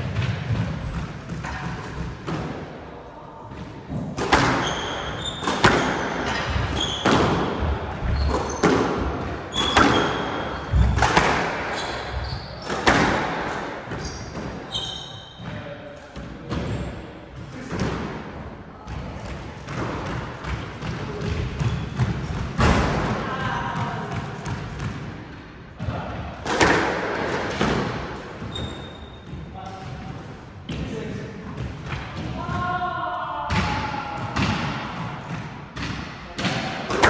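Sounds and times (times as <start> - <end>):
squash ball hitting rackets and walls: 0.0 - 37.0
sneakers squeaking on wooden floor: 4.4 - 11.0, 11.6 - 12.9, 13.9 - 15.4, 28.4 - 29.9.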